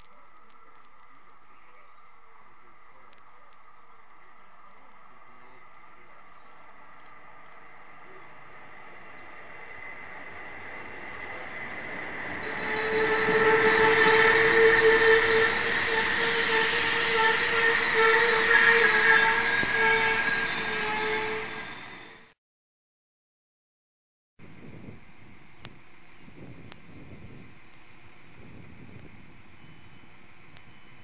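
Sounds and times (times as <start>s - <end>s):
steady whine: 0.0s - 22.3s
diesel railcar engine: 2.2s - 22.3s, 24.4s - 31.0s
train wheels on rails: 4.7s - 22.3s.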